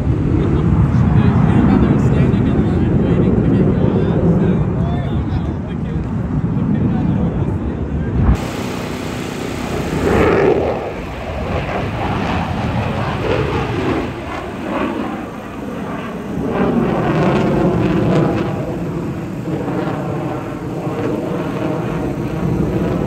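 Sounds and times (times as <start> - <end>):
jets flying past: 5.8 - 23.0.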